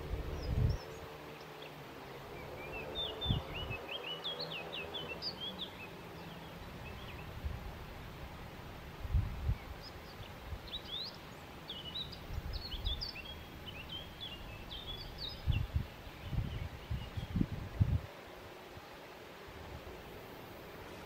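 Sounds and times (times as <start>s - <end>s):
wind bumping the microphone: 0.0s - 1.0s, 3.0s - 3.9s, 8.9s - 11.0s, 12.0s - 18.2s
songbirds chirping: 0.0s - 21.0s
steady outdoor hiss: 0.0s - 21.0s.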